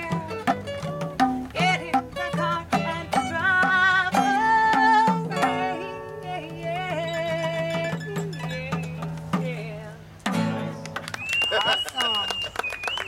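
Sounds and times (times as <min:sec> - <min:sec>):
acoustic guitars strumming: 0:00.0 - 0:11.8
person singing: 0:01.6 - 0:10.0.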